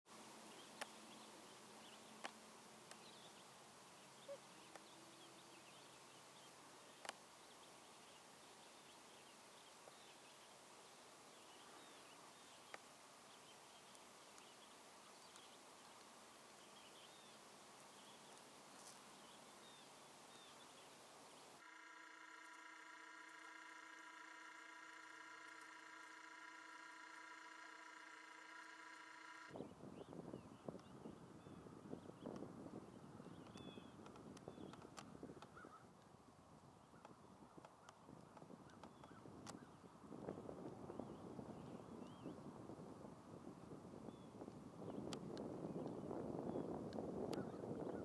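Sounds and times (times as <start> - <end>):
distant small birds chirping: 0.1 - 42.5
sharp clicks: 0.7 - 1.0, 7.0 - 7.2, 33.4 - 35.5.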